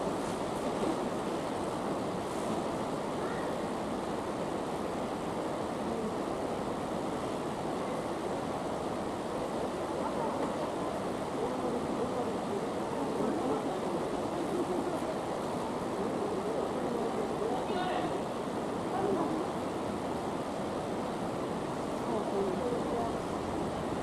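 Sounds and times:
faint voices: 9.8 - 19.8.

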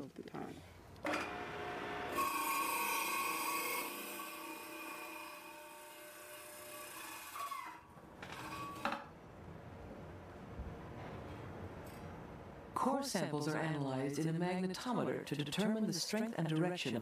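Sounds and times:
power tool grinding rock: 1.1 - 7.6.

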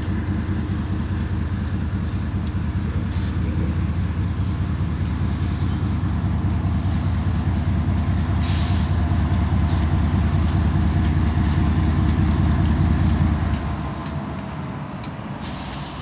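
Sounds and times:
diesel locomotive rumble: 0.0 - 16.0
brief air hiss: 8.4 - 9.0, 15.4 - 16.0.

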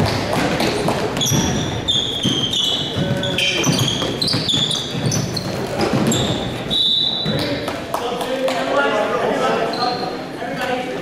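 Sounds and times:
basketball bouncing: 0.0 - 6.6
sneakers squeaking on gym floor: 0.0 - 7.7, 9.6 - 10.8.

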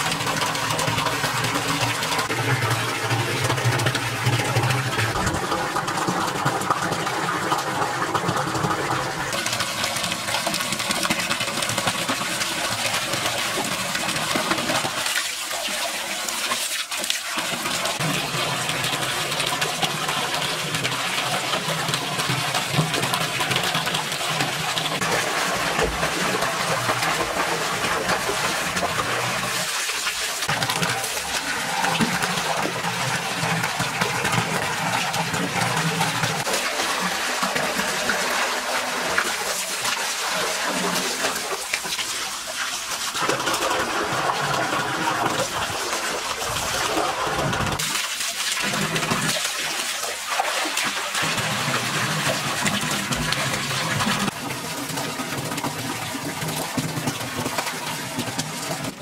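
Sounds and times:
stream of water pouring: 0.0 - 59.0
water splashing in a pool: 0.0 - 59.0.

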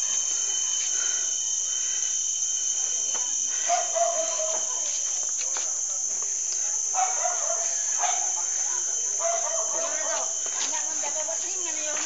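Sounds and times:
forest insects droning: 0.0 - 12.0.

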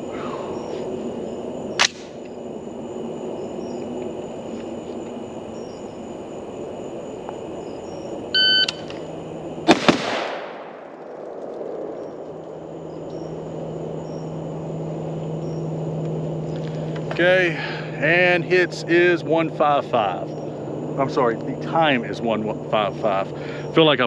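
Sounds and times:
night insects chirring: 0.0 - 24.0
sharp click: 1.8 - 2.3, 8.6 - 9.1
shot timer beep: 8.4 - 8.8
rifle shots with echo: 9.6 - 11.0.

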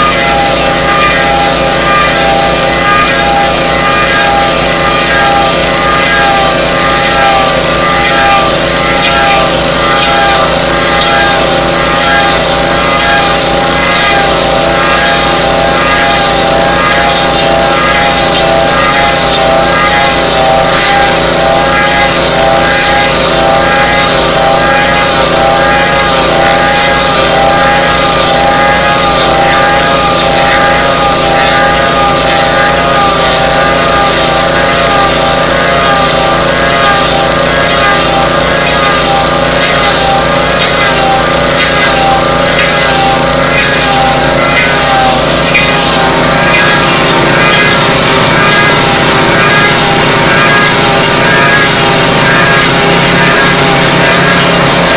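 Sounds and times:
small gasoline engine under load: 0.0 - 54.9
wood being shredded hiss: 0.0 - 54.9.

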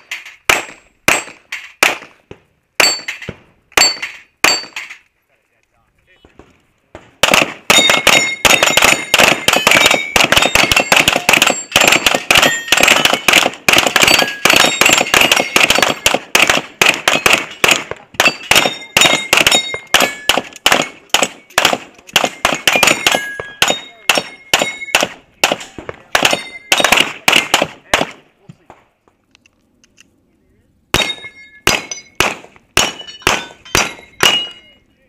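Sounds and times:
bullets ringing steel targets: 0.0 - 2.2, 2.8 - 5.0, 7.2 - 28.2, 30.9 - 34.8
handgun shots: 7.2 - 28.2, 31.0 - 34.5.

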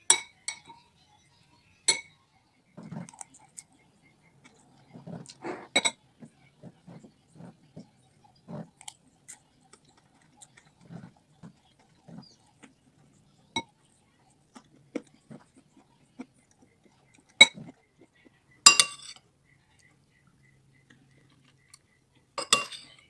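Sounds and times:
metal spoon clinking ceramic bowl: 0.0 - 0.8, 1.9 - 2.2, 18.7 - 19.2, 22.4 - 23.0
close chewing: 2.7 - 18.6, 19.5 - 23.0.

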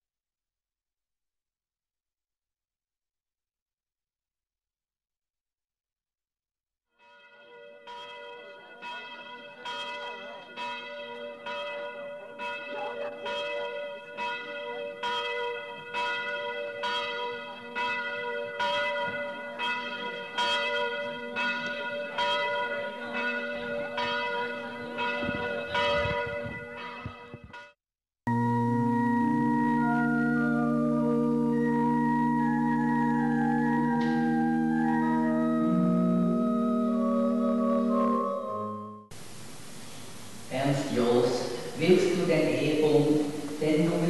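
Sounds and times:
church bells ringing: 7.0 - 39.0.

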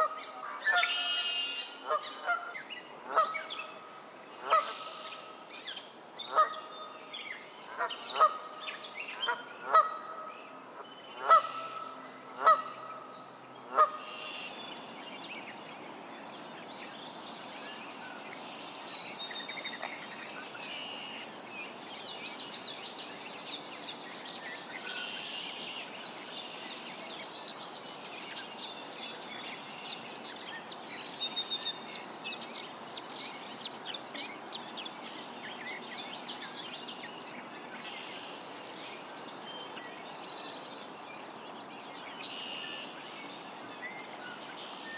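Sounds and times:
faint steady background noise: 0.0 - 44.9
songbirds chirping: 0.0 - 44.9
goose honking: 11.2 - 11.8, 12.4 - 13.0.

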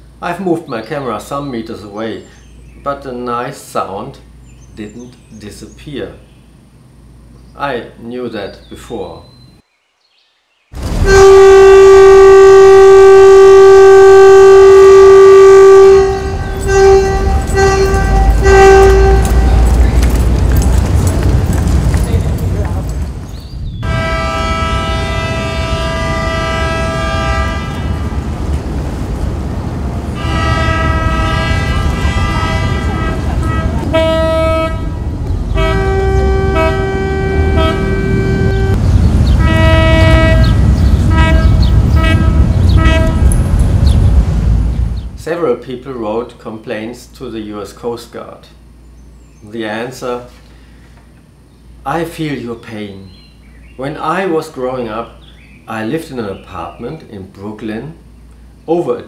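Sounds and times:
ferry horn blasts: 10.8 - 21.6, 23.8 - 28.8, 30.0 - 44.9
short horn toots: 10.9 - 20.2, 23.8 - 28.1, 30.2 - 38.8, 39.4 - 43.7
low rumble: 15.7 - 25.9, 26.8 - 45.2.

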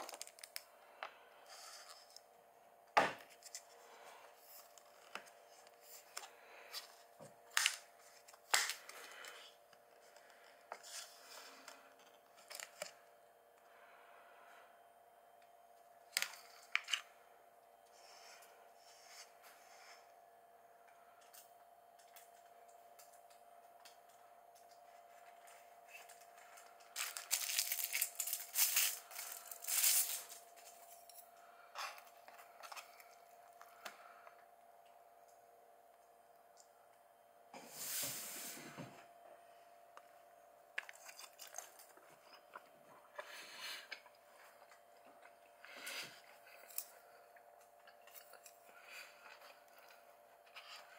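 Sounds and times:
packaging tearing and crinkling: 0.0 - 0.6, 26.9 - 30.5
faint steady hum: 0.0 - 50.9.

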